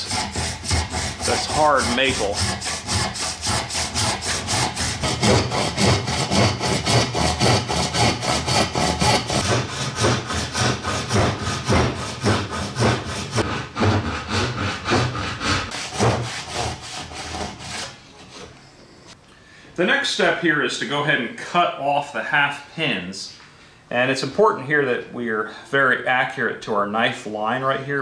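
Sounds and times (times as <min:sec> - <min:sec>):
hand saw cutting wood: 0:00.0 - 0:18.0.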